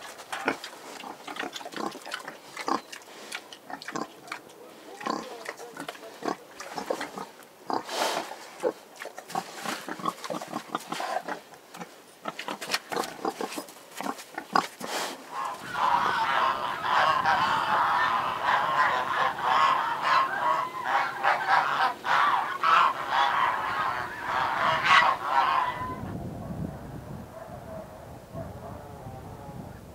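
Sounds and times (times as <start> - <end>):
pigs grunting: 0.0 - 26.0
geese honking: 15.3 - 26.0.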